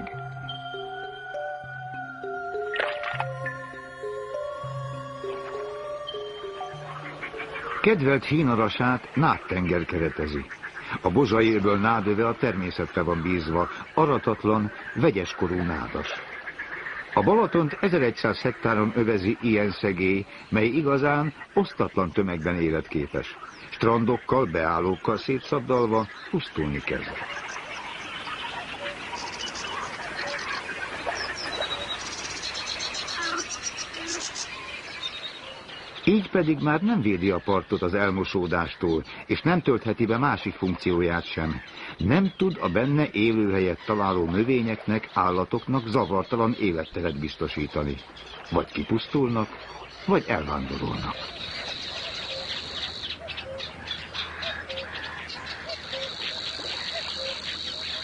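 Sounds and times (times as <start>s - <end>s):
steady high hiss: 0.0s - 38.2s
background bird calls: 0.0s - 58.0s
songbirds singing: 0.0s - 58.0s.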